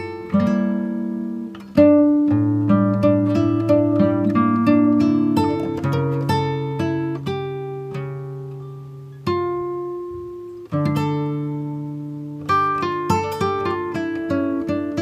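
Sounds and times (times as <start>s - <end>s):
plucked guitar music: 0.0s - 15.0s.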